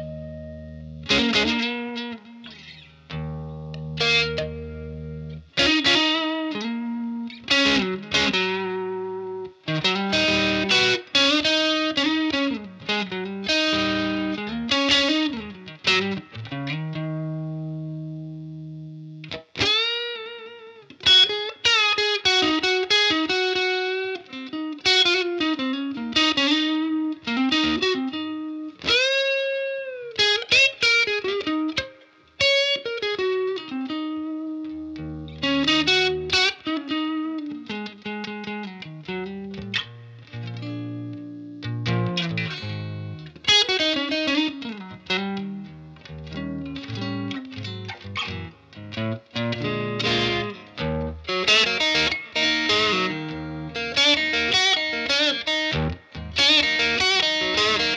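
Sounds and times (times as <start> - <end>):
electric guitar solo: 0.0 - 57.9.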